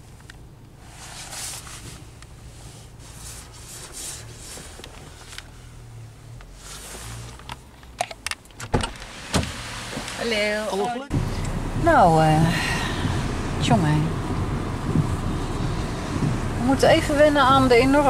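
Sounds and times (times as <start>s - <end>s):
traffic hiss on wet road: 0.8s - 5.7s, 11.2s - 18.0s
car door unlatching and opening: 7.3s - 10.4s
low steady hum: 10.4s - 18.0s.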